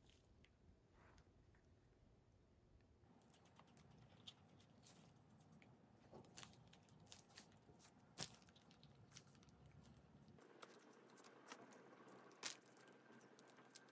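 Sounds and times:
batter squishing from piping bag: 3.1 - 13.9.

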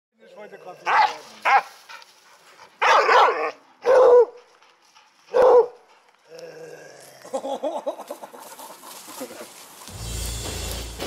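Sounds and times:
dog barking: 0.8 - 1.7, 2.8 - 4.4, 5.3 - 5.8.

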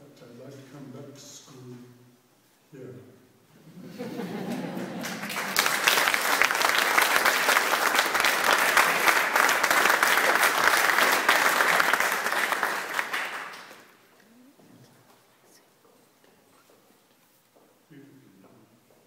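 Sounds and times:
audience applauding: 4.4 - 14.0.

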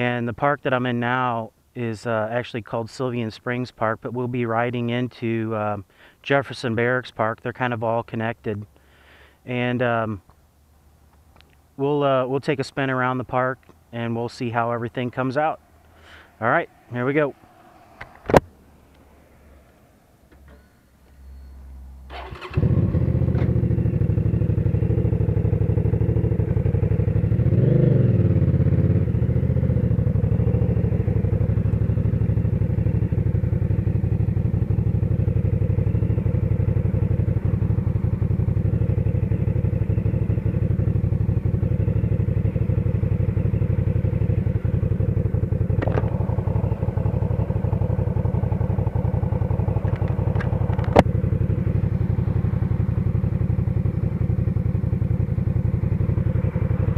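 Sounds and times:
motorcycle engine idling: 22.1 - 56.9.

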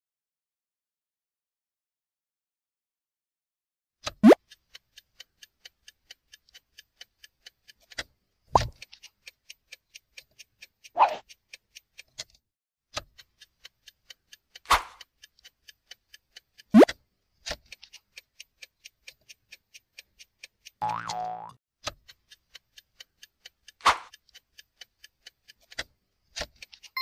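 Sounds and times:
clock-like ticking: 4.0 - 27.0.

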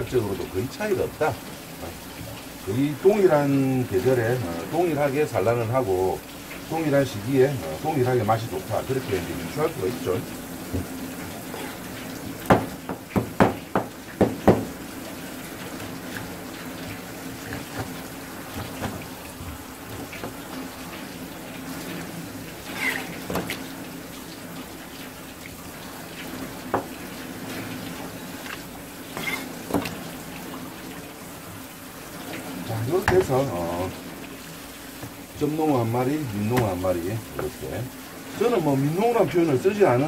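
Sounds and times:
tap water splashing on cutting board: 0.0 - 39.4
knife knocking on board: 12.5 - 14.7.

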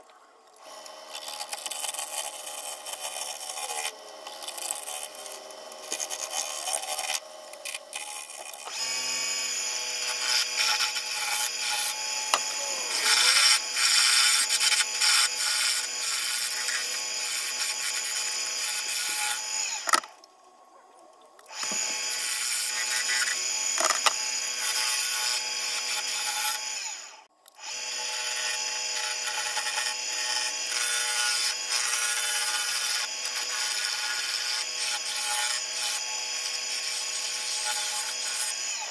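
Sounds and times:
lathe humming: 0.6 - 19.9
gouge scraping spinning wood: 0.7 - 20.0, 21.5 - 38.9.

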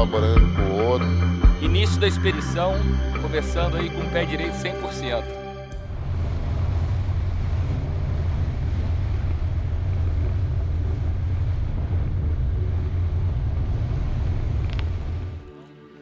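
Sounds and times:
vehicle rumbling on dirt road: 5.7 - 15.5.

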